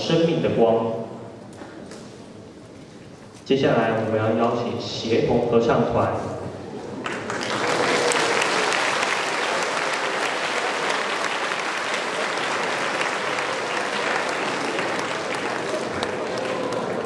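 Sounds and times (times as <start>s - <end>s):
crowd clapping: 7.0s - 17.0s.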